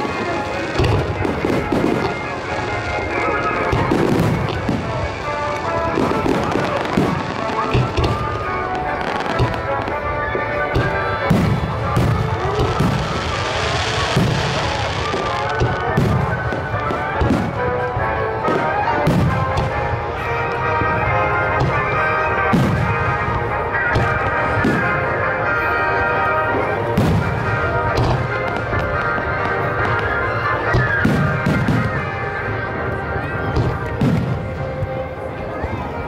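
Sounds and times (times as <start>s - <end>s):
fireworks booming and banging: 0.0s - 36.0s
music playing: 0.0s - 36.0s.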